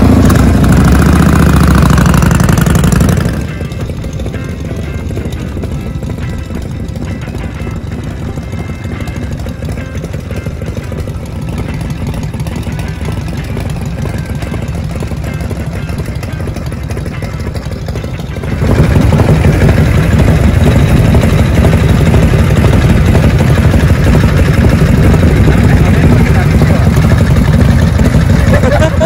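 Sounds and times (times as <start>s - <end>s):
motorcycle engine idling: 0.0s - 29.0s.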